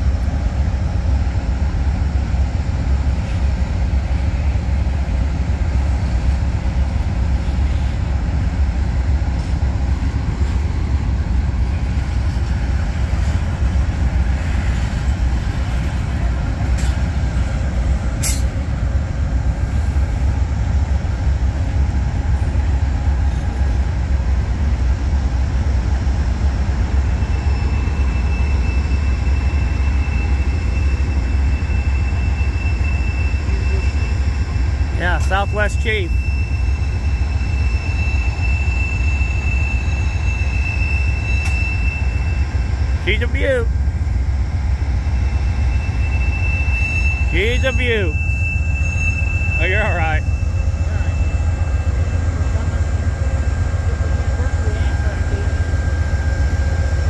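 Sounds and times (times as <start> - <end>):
diesel locomotive engine rumble: 0.0 - 57.0
thin high whine: 45.2 - 57.0.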